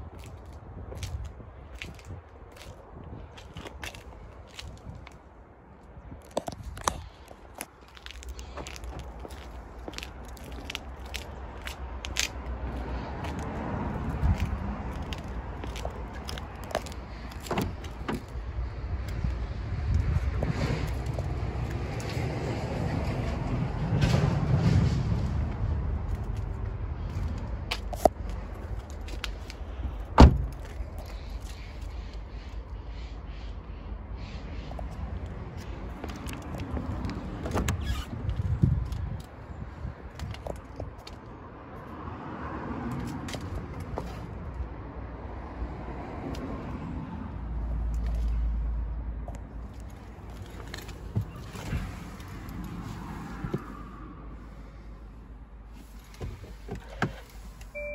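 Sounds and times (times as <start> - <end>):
car door shutting thump: 30.2 - 30.6.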